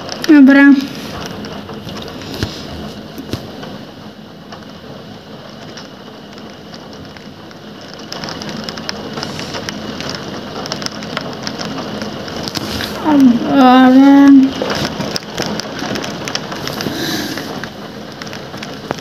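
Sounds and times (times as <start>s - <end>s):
heavy rain falling: 0.0s - 19.0s.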